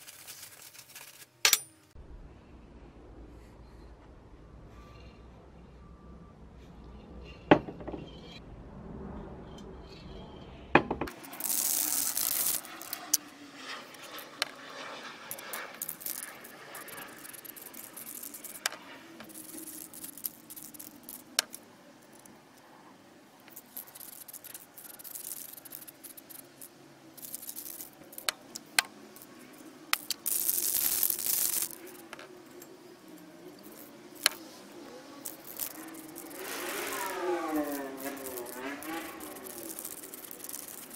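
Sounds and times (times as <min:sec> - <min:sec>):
spray can hissing: 0:11.1 - 0:13.2, 0:30.0 - 0:32.0, 0:35.2 - 0:40.9.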